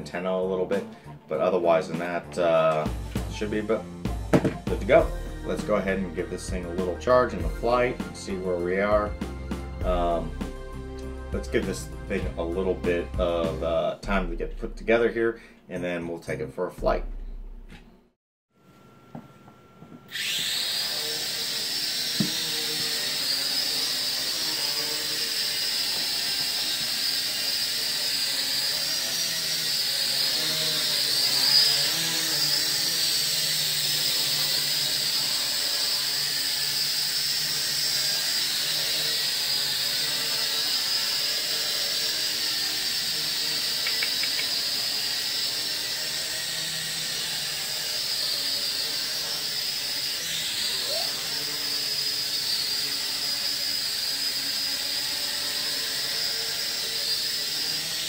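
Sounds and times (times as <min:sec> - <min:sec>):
toy drone propellers whining: 0:20.1 - 0:58.0.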